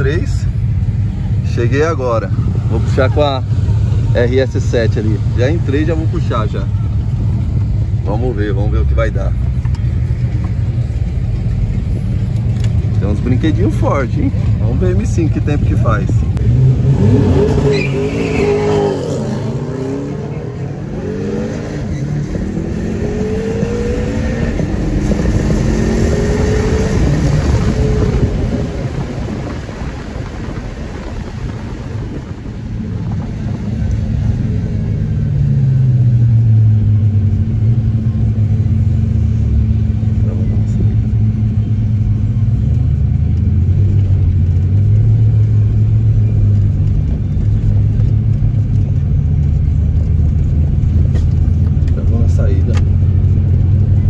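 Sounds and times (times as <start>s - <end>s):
car engine revving through upshifts: 16.4s - 29.1s.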